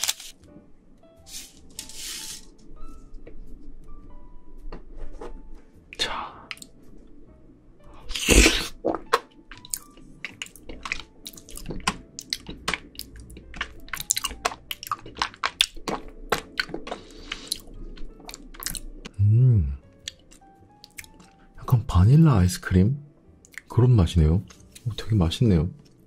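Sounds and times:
wet mouth sounds eating pudding: 8.1s - 19.2s.

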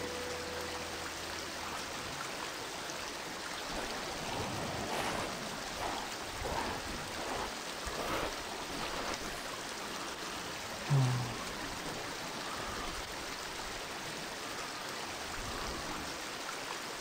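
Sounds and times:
river water rushing: 0.0s - 17.0s
water splashing: 2.0s - 14.0s.

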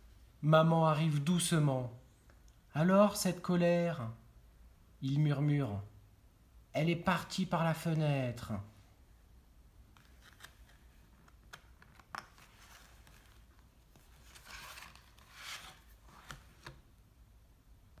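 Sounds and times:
soft swishes of pages turning: 9.9s - 17.0s.

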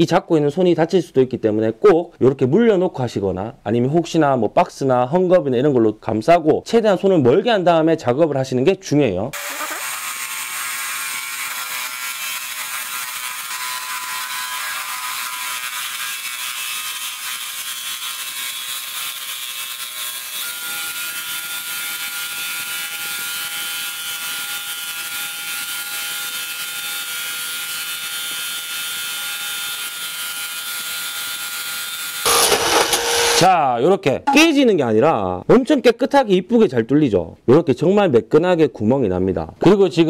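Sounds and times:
drill motor whine: 9.4s - 10.3s, 32.2s - 33.5s
bit grinding glass: 32.2s - 33.5s.

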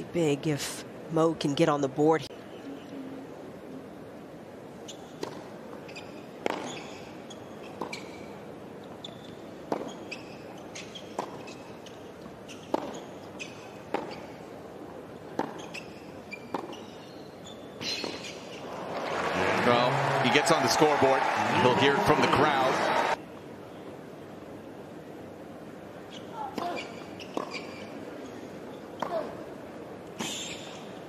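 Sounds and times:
sneakers squeaking on court: 5.9s - 8.3s, 8.9s - 14.4s, 15.4s - 18.6s, 26.1s - 27.9s.

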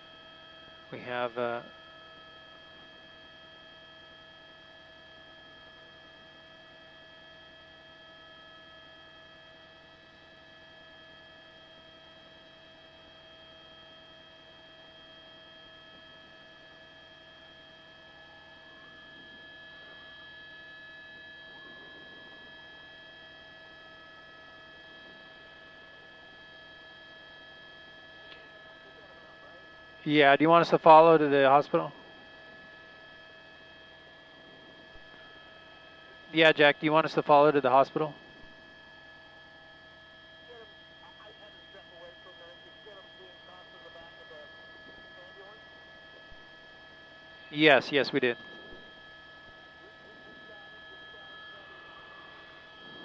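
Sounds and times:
intercom hum: 18.0s - 38.6s, 40.4s - 53.0s.

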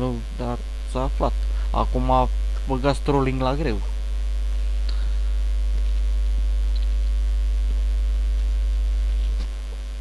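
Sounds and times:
electrical mains hum: 0.0s - 10.0s.

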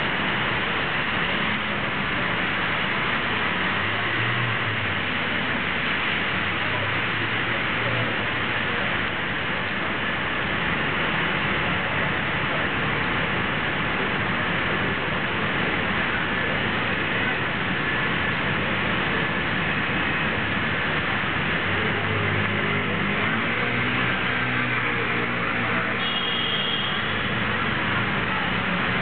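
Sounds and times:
rain hiss: 0.0s - 29.0s
traffic on wet streets: 0.0s - 29.0s
vehicle engine hum: 0.0s - 29.0s.

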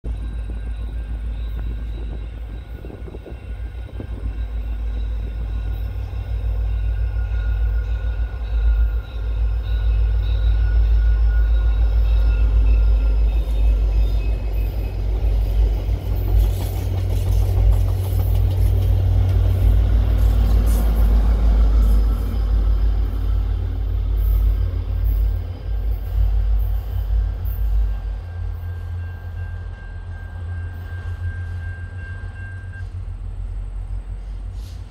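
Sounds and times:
diesel locomotive engine rumble: 0.0s - 34.9s
train wheels clicking over rail joints: 11.5s - 28.2s.

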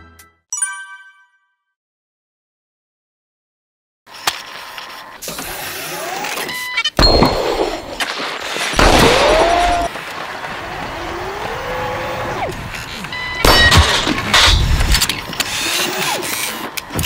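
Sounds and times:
robot joint motors whining: 4.1s - 7.0s, 8.8s - 10.0s, 10.6s - 17.0s.

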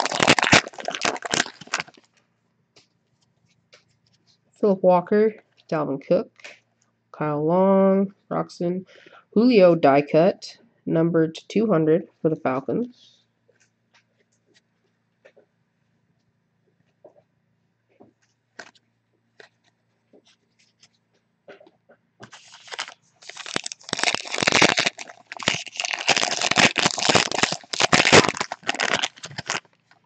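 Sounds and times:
foil wrapper crinkling: 0.0s - 2.2s, 22.2s - 30.0s.

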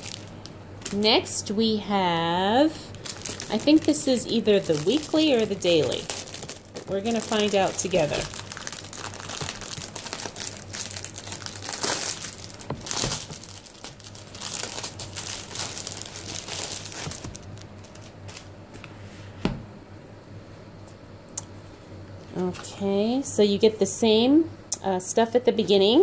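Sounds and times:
plastic bag crinkling: 0.0s - 18.5s.

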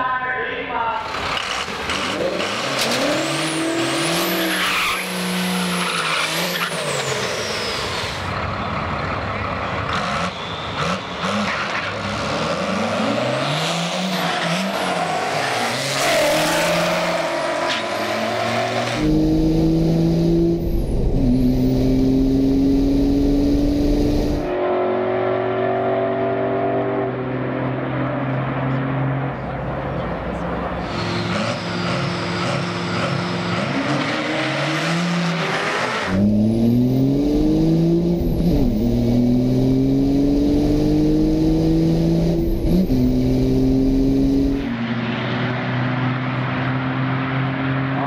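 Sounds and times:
race car engine: 1.0s - 48.0s
tire noise: 1.0s - 48.0s
diesel pickup engine revving: 5.1s - 24.5s, 31.3s - 44.7s.

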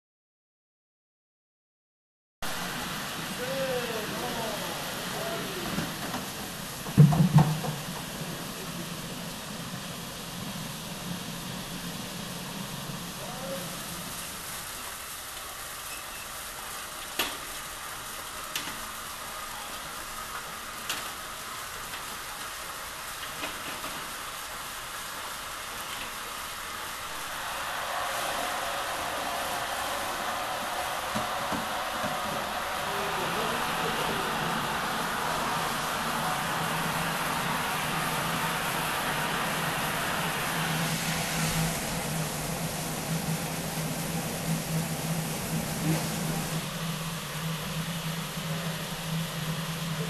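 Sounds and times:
water rushing and hissing: 2.4s - 50.0s
loud knocks: 6.9s - 8.0s.

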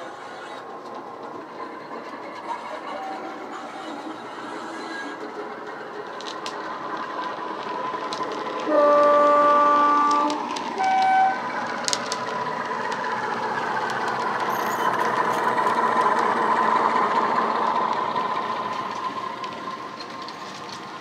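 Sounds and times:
diesel engine sound: 0.0s - 21.0s
two-tone locomotive horn: 8.6s - 11.5s.

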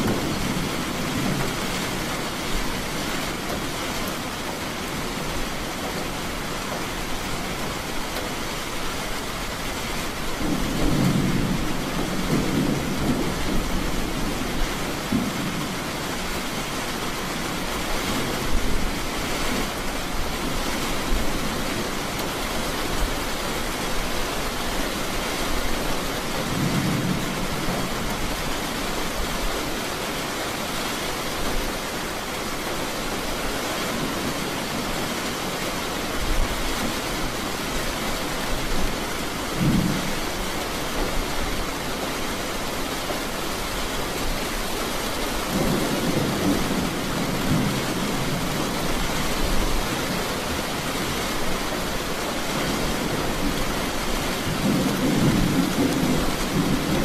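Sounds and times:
thunder rolling: 0.0s - 2.0s, 10.4s - 15.8s
steady rain: 0.0s - 57.0s.

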